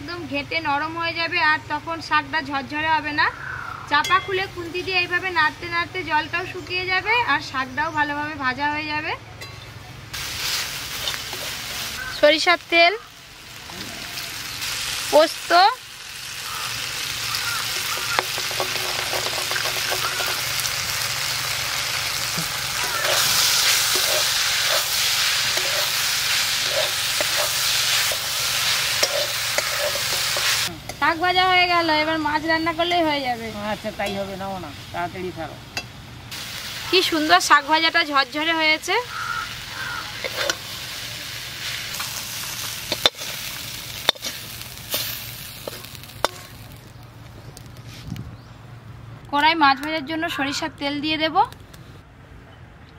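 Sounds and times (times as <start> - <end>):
greens sizzling in oil: 10.1 - 48.0
metal spatula clicking and scraping: 17.7 - 20.6, 22.9 - 31.0, 40.2 - 40.7, 42.9 - 43.4, 44.0 - 46.6.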